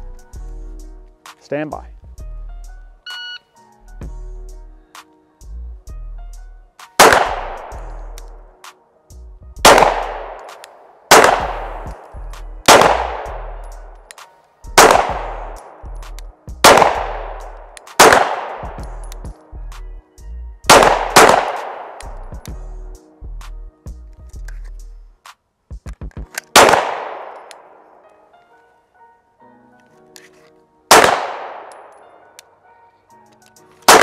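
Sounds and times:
handgun shots: 7.0 - 7.8, 9.7 - 12.1, 12.7 - 13.6, 14.8 - 15.7, 16.6 - 18.8, 20.7 - 22.1, 26.4 - 27.7, 30.9 - 32.0.

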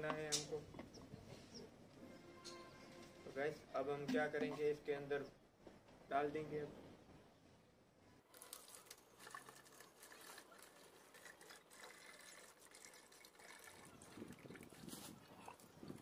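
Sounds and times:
slurry trickling into plastic bottle: 8.3 - 16.0.

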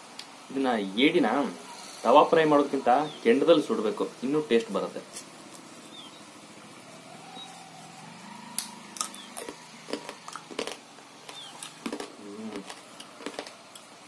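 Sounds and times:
crab shell cracking and crunching: 8.6 - 14.0.

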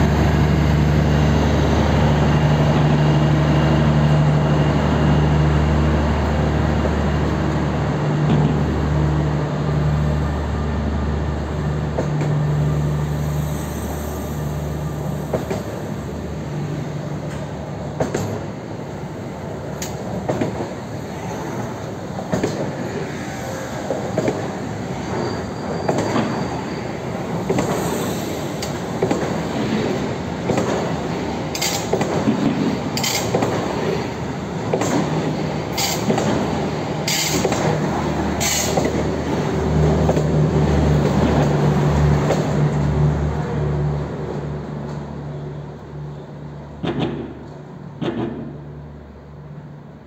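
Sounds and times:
train wheel and rail rumble: 0.0 - 50.0
high wheel squeals: 24.9 - 27.2.

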